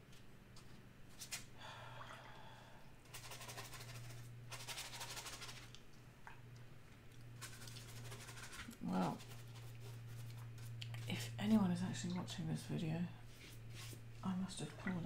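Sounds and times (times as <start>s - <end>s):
faint low hum: 0.0s - 15.0s
brush on wet paper: 7.4s - 11.4s, 13.3s - 14.0s.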